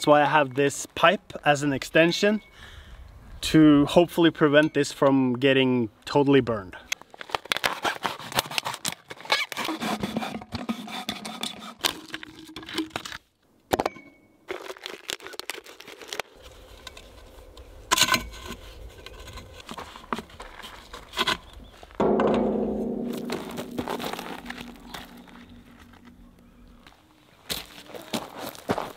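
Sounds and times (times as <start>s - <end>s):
plastic bottle crackling: 14.5s - 16.3s.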